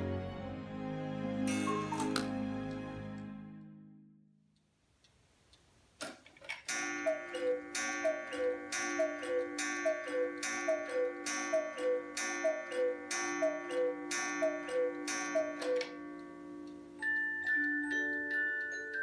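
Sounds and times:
cuckoo clock calling: 1.5s - 2.3s, 6.7s - 19.0s.

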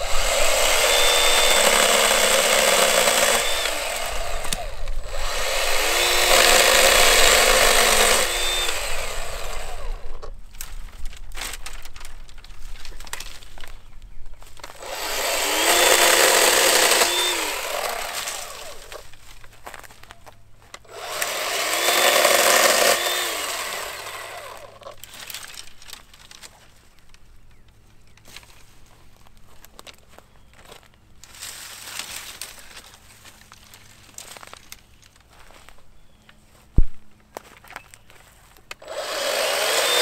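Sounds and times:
electric chainsaw cutting wood: 0.0s - 10.3s, 14.7s - 19.2s, 20.8s - 25.6s, 38.7s - 40.0s
brush rustling: 0.0s - 40.0s.

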